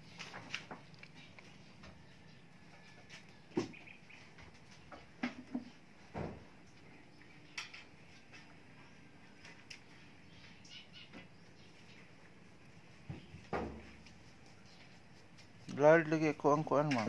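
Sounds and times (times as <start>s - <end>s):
dull thump: 13.1s - 14.0s.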